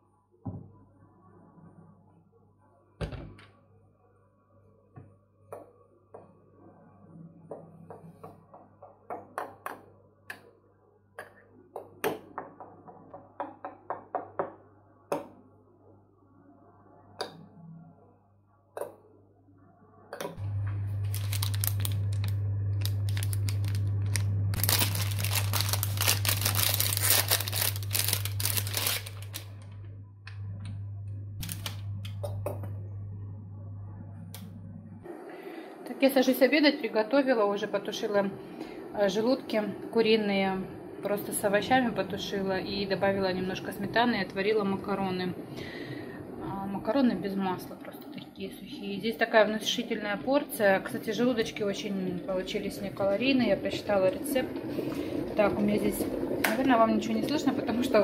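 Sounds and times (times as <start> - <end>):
steady low hum: 19.8 - 58.0.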